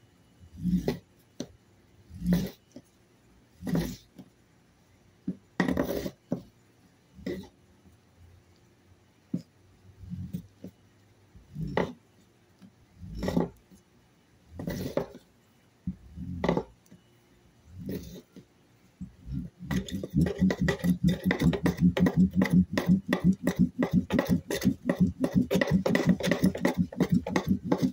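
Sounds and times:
roll rubbing under wooden board: 0:19.0 - 0:27.9.

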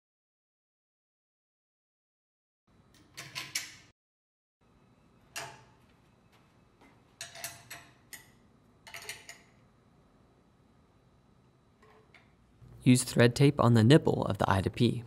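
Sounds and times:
metal wrenches clicking on bolts: 0:07.2 - 0:09.6.

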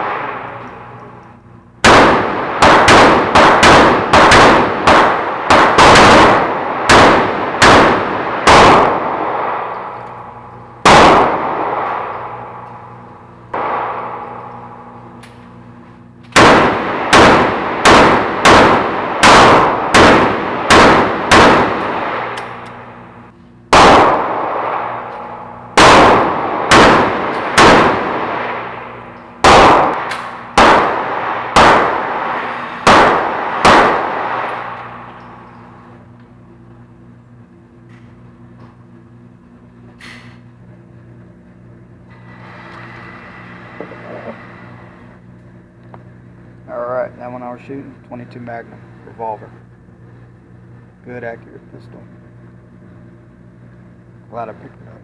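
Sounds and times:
gunshots echoing indoors: 0:00.0 - 0:42.8.

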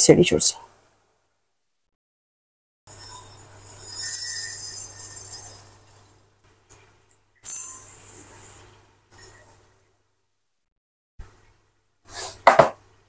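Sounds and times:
rice pouring into a glass bowl: 0:02.9 - 0:05.6, 0:07.4 - 0:08.7.

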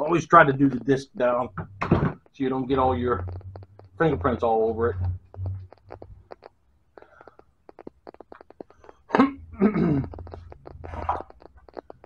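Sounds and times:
mumbled voice: 0:09.0 - 0:11.4.

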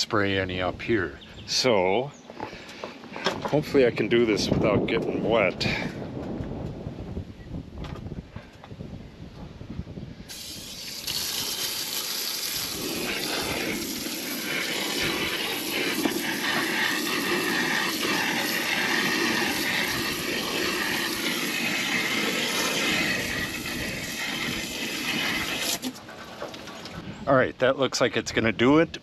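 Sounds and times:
hose nozzle spraying water: 0:10.3 - 0:26.0.

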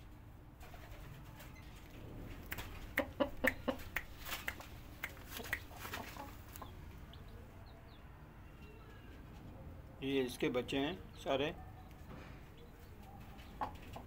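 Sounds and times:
chicken clucking: 0:02.4 - 0:08.0, 0:11.8 - 0:14.0.

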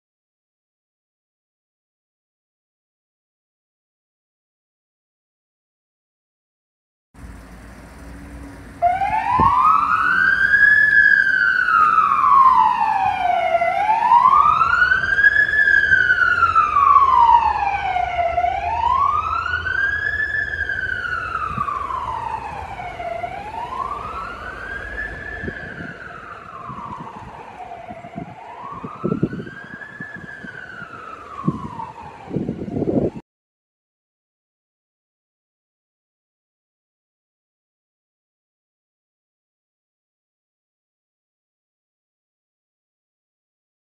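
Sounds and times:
street traffic: 0:07.2 - 0:33.2
siren slow wail: 0:08.2 - 0:33.2.

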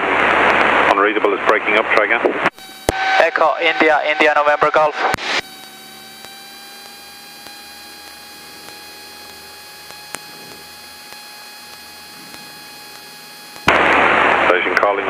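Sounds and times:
radio electrical hum and whine: 0:00.0 - 0:15.0
static hiss: 0:05.0 - 0:15.0
sharp click: 0:05.1 - 0:13.8.

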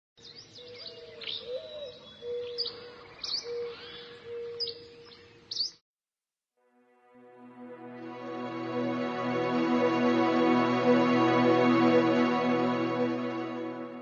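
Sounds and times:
birds chirping: 0:00.2 - 0:05.8.

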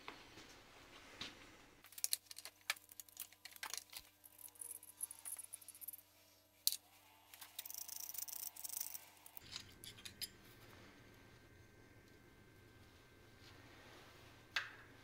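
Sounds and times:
metallic clinking and scraping: 0:01.8 - 0:10.5.

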